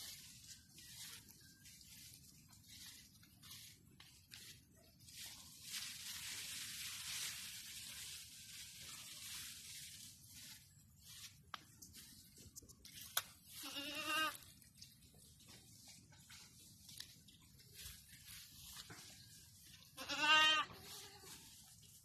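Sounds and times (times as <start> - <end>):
high rustling hiss: 5.1 - 11.4
goat bleating: 13.5 - 14.4, 20.0 - 21.4.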